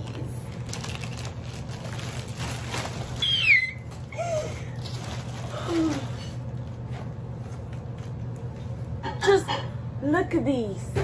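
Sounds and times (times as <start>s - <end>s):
plastic bag crinkling: 0.0s - 6.8s
woman's high-pitched squeal: 3.2s - 3.9s.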